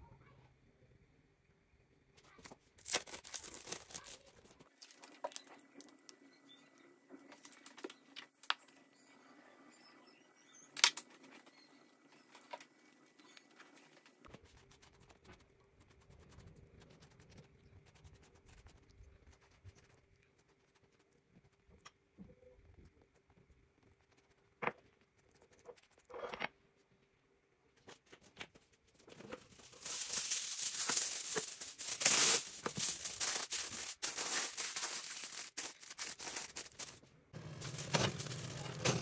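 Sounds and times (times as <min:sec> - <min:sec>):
plastic crinkling and tearing: 0:02.4 - 0:06.0, 0:29.0 - 0:37.0.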